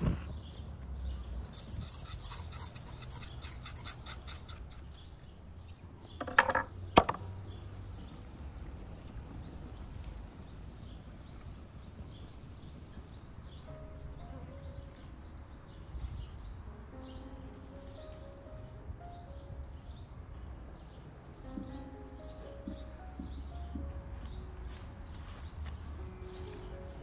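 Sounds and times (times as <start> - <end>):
knife scraping a hoof: 1.4 - 5.0
blade knocking on wooden board: 6.2 - 7.3.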